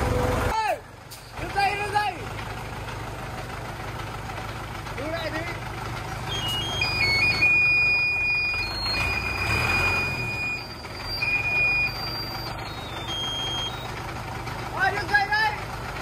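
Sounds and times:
diesel engine running: 0.0s - 16.0s
high whistling tones: 6.3s - 13.9s.

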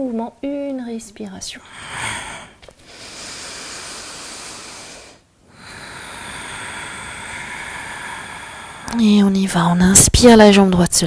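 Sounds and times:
deep breaths: 1.6s - 9.0s.

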